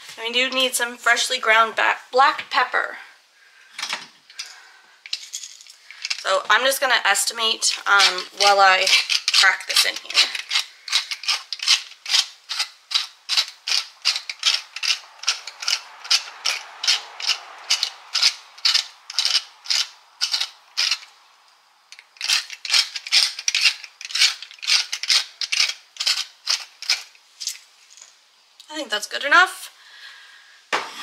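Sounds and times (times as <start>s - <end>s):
pepper mill grinding: 4.3s - 21.1s, 21.9s - 28.1s.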